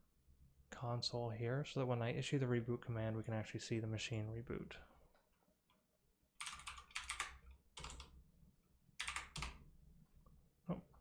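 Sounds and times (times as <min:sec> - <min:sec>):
computer keyboard typing: 0:06.4 - 0:08.2, 0:09.0 - 0:09.6.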